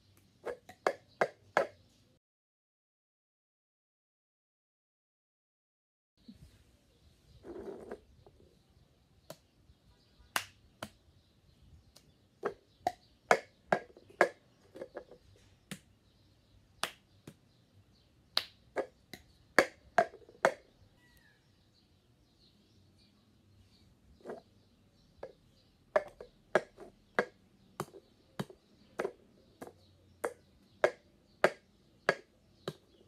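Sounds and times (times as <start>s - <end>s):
plastic cups tapping on tiled floor: 0.4s - 1.8s, 12.4s - 15.2s, 18.7s - 20.7s, 26.0s - 33.0s
hand claps: 10.4s - 10.6s, 16.8s - 17.0s.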